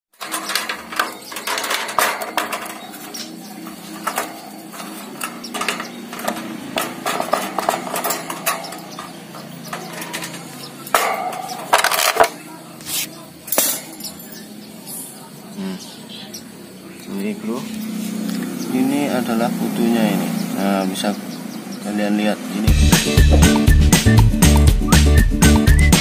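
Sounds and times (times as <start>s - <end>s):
wire bird cage rattling: 0.2s - 12.4s.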